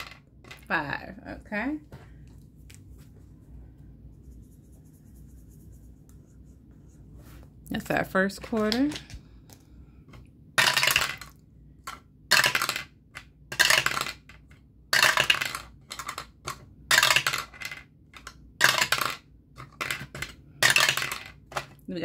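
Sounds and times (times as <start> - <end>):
die clattering through dice tower: 0.0 - 0.7, 10.6 - 21.8.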